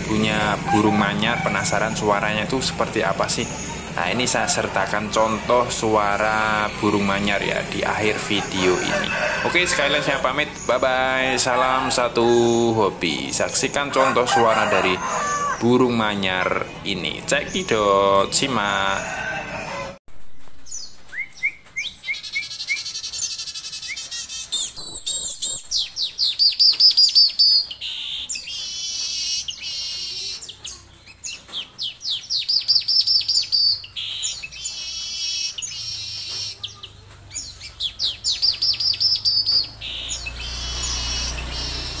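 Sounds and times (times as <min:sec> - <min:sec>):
weaver bird chirping and trilling: 0:20.7 - 0:42.0.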